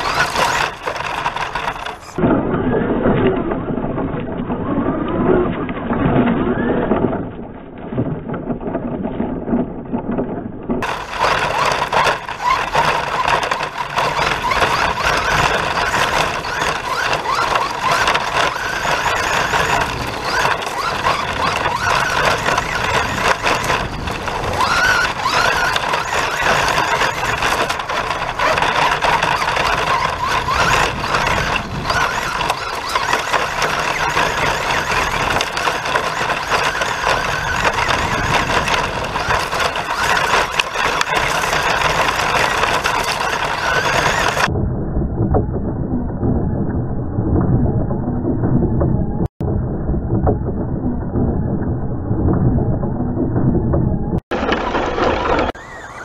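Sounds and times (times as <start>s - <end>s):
toy car motor whining: 0.0s - 2.2s, 10.8s - 44.5s, 54.4s - 56.0s
tyres and chassis rattling: 0.0s - 44.5s, 50.1s - 56.0s.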